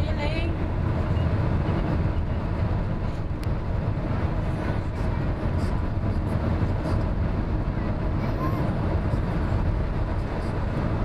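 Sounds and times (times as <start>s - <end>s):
tyre and engine rumble in car: 0.0s - 11.0s.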